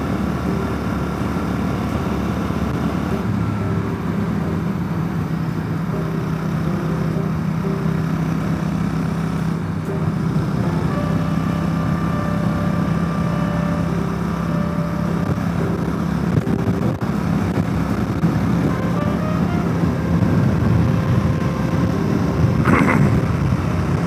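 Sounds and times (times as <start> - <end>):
motorcycle engine cruising: 0.0 - 24.0
wind rushing over microphone: 15.1 - 24.0.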